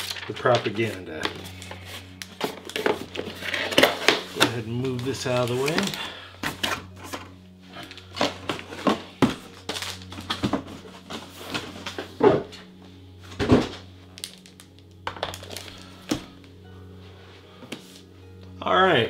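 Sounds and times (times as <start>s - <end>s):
packaging rustling and clicking: 0.0s - 12.7s, 13.3s - 16.5s.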